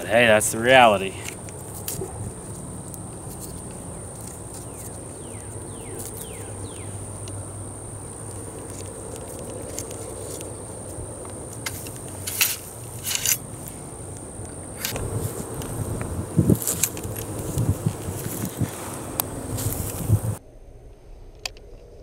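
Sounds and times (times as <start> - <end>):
ramrod scraping down barrel: 11.6 - 13.4
rod drawn up barrel: 11.6 - 13.4.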